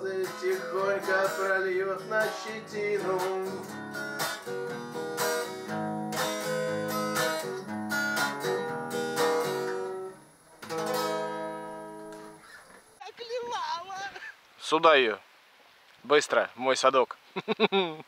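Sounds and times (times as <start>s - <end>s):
acoustic guitar strumming: 0.0s - 13.0s.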